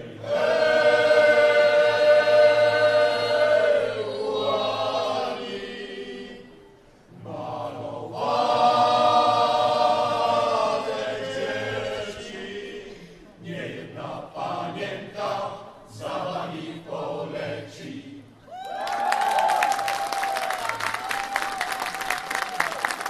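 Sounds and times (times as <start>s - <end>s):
choir singing long notes: 0.0s - 18.5s.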